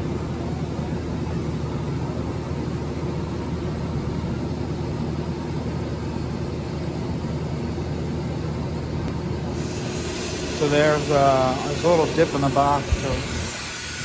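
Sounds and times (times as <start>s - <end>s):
arc welding crackling buzz: 9.5s - 14.0s.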